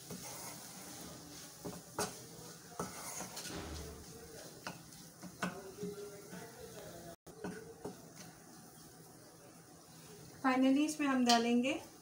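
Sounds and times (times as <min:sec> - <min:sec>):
spatula scraping a pan: 0:00.0 - 0:06.6.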